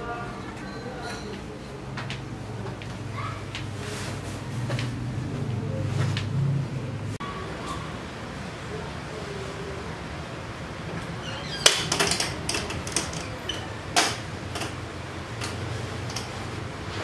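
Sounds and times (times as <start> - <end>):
sharp clicks and knocks: 11.6 - 16.5.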